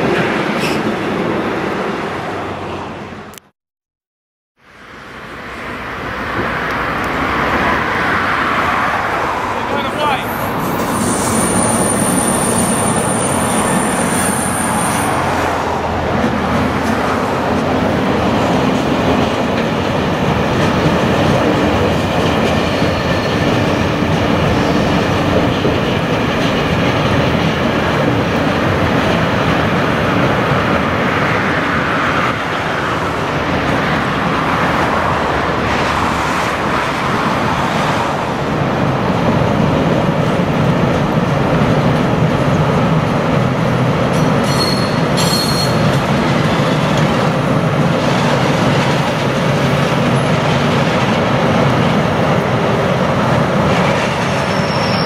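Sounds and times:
freight train rumbling: 0:00.0 - 0:03.4, 0:04.8 - 0:55.0
high wheel squeals: 0:10.2 - 0:15.3, 0:44.4 - 0:47.1, 0:54.4 - 0:55.0.

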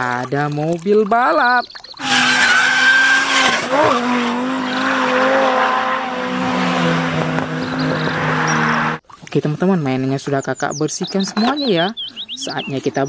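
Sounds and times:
race car engine at high revs: 0:02.0 - 0:09.0
tyres squealing: 0:02.0 - 0:09.0.

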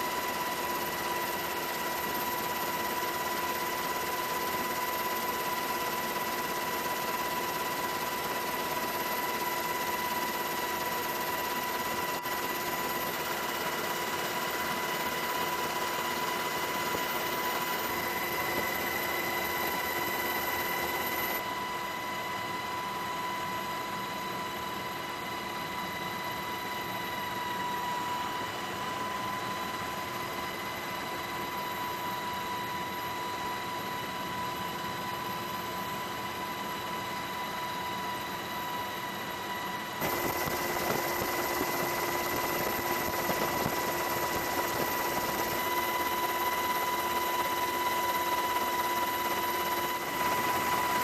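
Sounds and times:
aircraft engine drone: 0:00.0 - 0:51.0
high even whine: 0:40.0 - 0:51.0.

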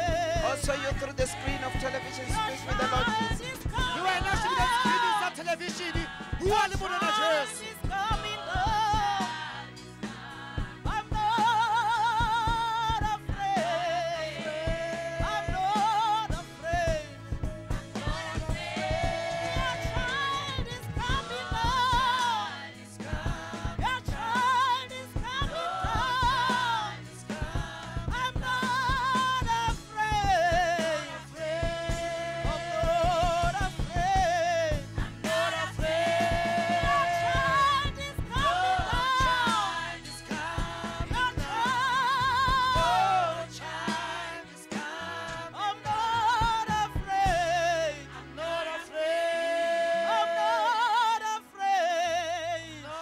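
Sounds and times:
person singing with vibrato: 0:00.0 - 0:09.8, 0:10.6 - 0:53.0
steady beat: 0:00.0 - 0:13.8, 0:14.5 - 0:45.0
keyboard accompaniment: 0:00.0 - 0:53.0.

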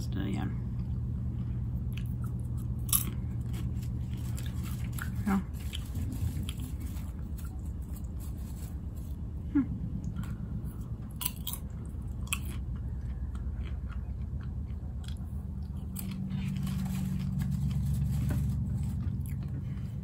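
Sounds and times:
steady low hum: 0:00.0 - 0:20.0
popcorn chewing crunches: 0:00.8 - 0:09.4, 0:10.0 - 0:20.0.

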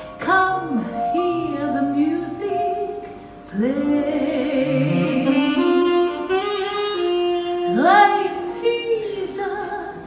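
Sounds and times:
saxophone: 0:00.0 - 0:10.0
woman singing: 0:00.0 - 0:10.0
band playing: 0:03.2 - 0:09.5.

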